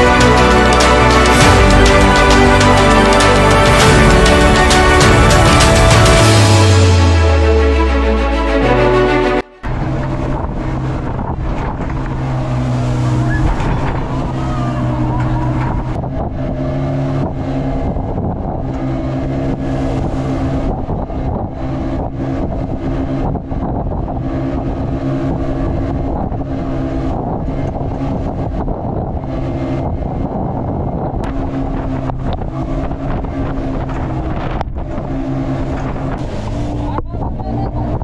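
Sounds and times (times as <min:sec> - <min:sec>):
motorboat engine running: 0:00.0 - 0:08.4, 0:09.6 - 0:38.0
water splashing along hull: 0:09.6 - 0:38.0.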